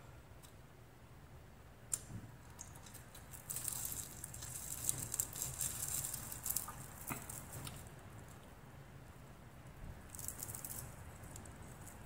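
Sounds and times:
crackling and squishing of fish: 0:01.9 - 0:08.7, 0:10.0 - 0:12.0.

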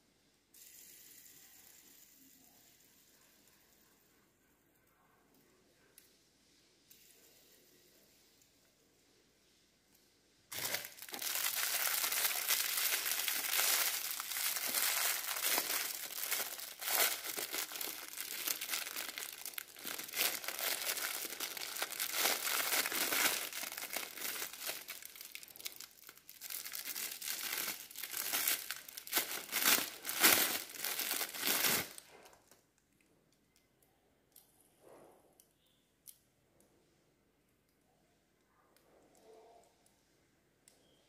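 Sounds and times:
plastic bag crinkling: 0:10.5 - 0:32.6.

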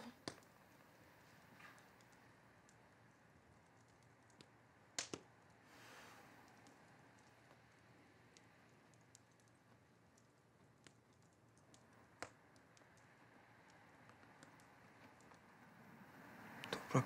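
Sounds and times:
small clicks: 0:01.4 - 0:05.6, 0:06.4 - 0:15.5.

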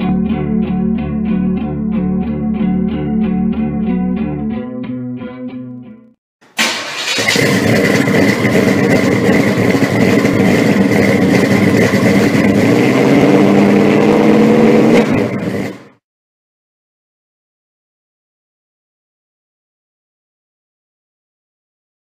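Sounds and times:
loud engine running hard: 0:06.6 - 0:16.0.

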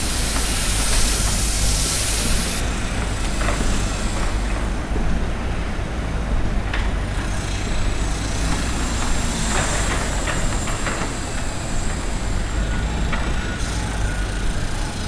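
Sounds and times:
paint spray gun hissing: 0:00.0 - 0:02.6.

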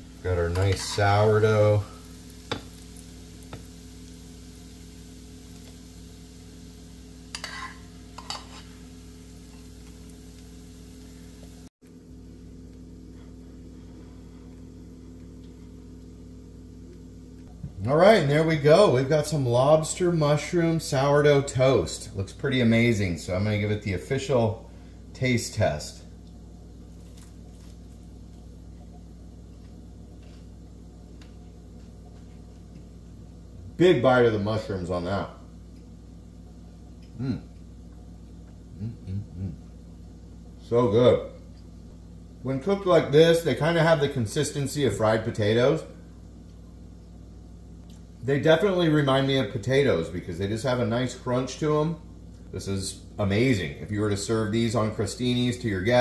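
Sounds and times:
steady low hum: 0:00.0 - 0:56.0
metal spoon scraping a skillet: 0:00.5 - 0:01.2, 0:07.3 - 0:08.8.

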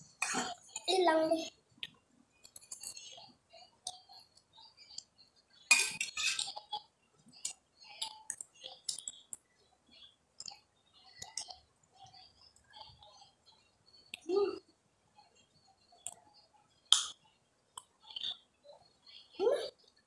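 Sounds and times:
cutlery clatter: 0:05.7 - 0:06.7
cutlery clinking on plates: 0:05.7 - 0:06.7.

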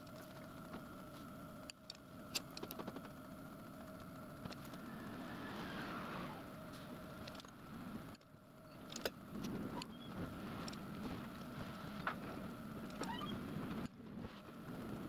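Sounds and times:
motor hum: 0:00.0 - 0:15.0
short rising squeaks: 0:04.9 - 0:06.5, 0:12.9 - 0:13.5.

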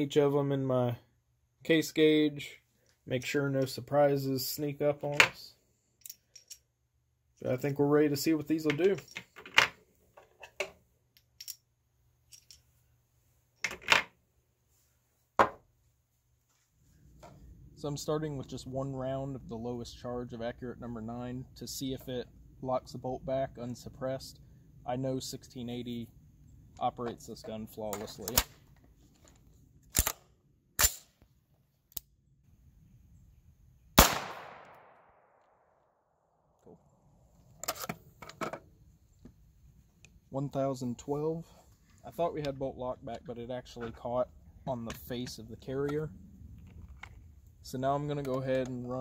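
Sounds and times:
metallic clacks of rifle loading: 0:06.0 - 0:06.7, 0:12.3 - 0:12.7
loud rifle shot: 0:34.0 - 0:35.4
light clicks of cartridges: 0:48.0 - 0:49.0.

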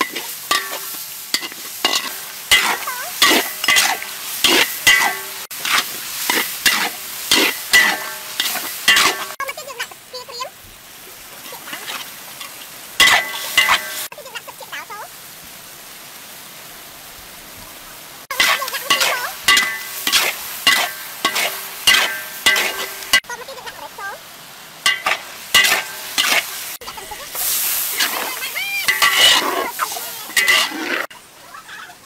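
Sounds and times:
metal spatula scraping wok: 0:00.0 - 0:09.4, 0:11.4 - 0:14.1, 0:18.3 - 0:23.8, 0:24.8 - 0:31.1
stir-fry sizzling in wok: 0:00.0 - 0:32.0.

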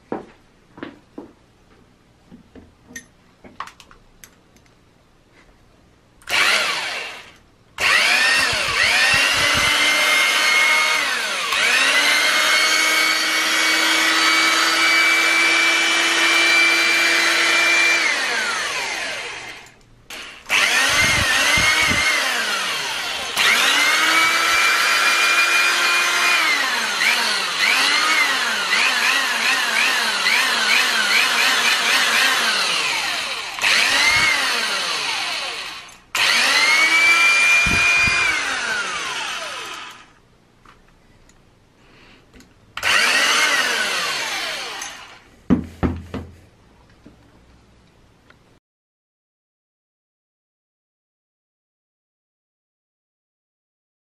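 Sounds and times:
electric drill motor whining: 0:06.3 - 0:40.2, 0:42.8 - 0:45.2.

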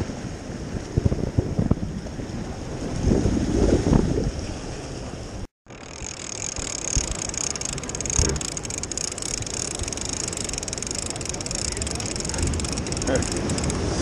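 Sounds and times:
surf washing on rocks: 0:00.0 - 0:14.0
wind on microphone: 0:00.0 - 0:14.0
fishing reel clicking: 0:05.7 - 0:14.0.

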